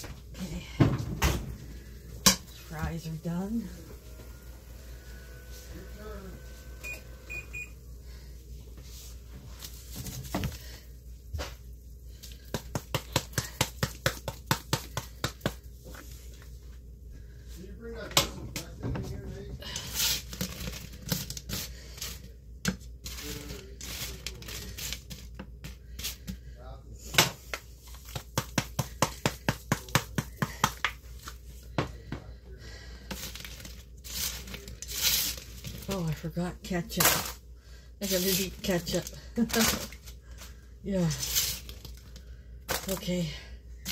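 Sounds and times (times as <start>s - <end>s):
kitchen appliance beeps: 6.4s - 7.8s
quiet handling of fries: 18.6s - 27.0s, 32.7s - 36.0s.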